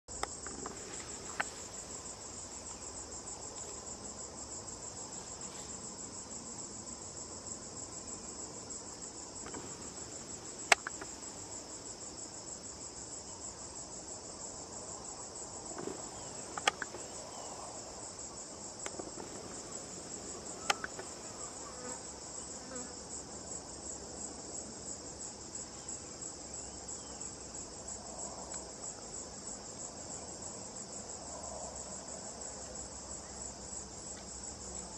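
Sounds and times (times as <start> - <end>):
insects trilling: 0.1 - 34.9
sharp clicks: 10.6 - 11.1, 15.8 - 17.0, 20.5 - 21.1.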